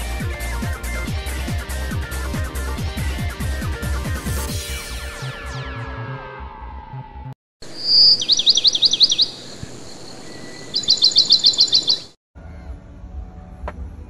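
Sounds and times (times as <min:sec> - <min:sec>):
small bird singing loudly: 0:07.6 - 0:12.2.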